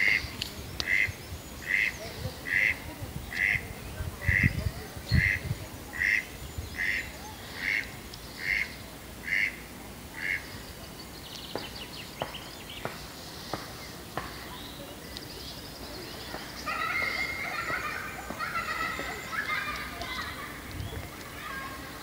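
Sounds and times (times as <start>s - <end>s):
duck quacking: 0.8s - 2.8s, 4.2s - 4.6s, 5.2s - 7.0s, 7.6s - 9.6s.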